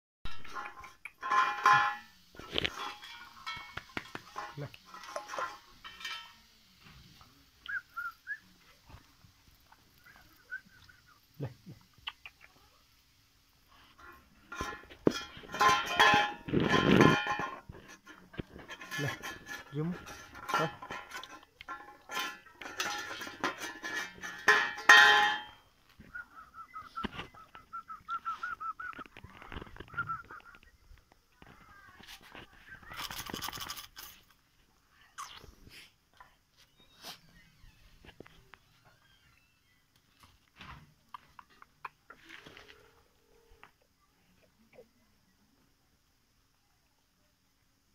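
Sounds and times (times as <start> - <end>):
dog bowl and chain knocking: 0.3 - 6.4, 14.5 - 25.7.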